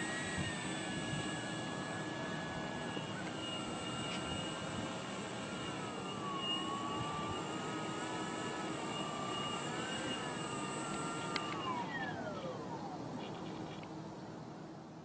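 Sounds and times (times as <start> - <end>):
model airplane motor whining: 0.0 - 13.9
click: 11.3 - 11.6.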